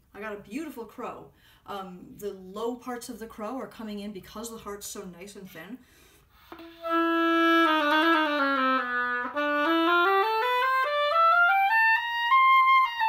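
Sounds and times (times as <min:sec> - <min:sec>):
oboe playing a scale: 0:06.4 - 0:13.0.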